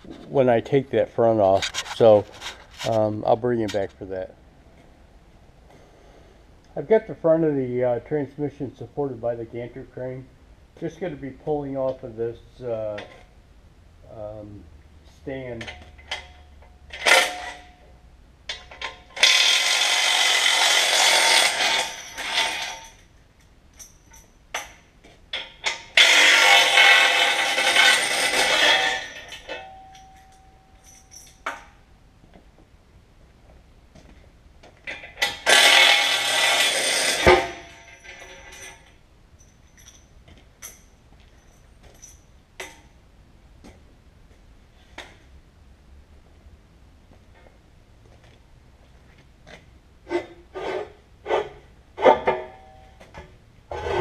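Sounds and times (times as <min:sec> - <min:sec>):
ringing tone: 0:28.9 - 0:31.3
clanks and knocks: 0:34.0 - 0:42.9.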